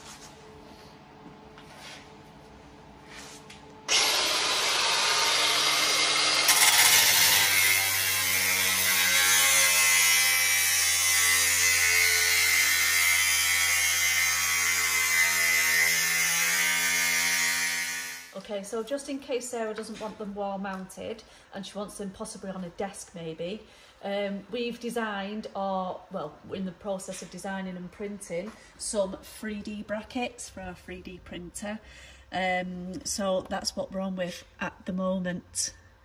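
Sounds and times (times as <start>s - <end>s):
grinder disc cutting steel: 3.9s - 18.3s
angle grinder whining: 3.9s - 18.4s.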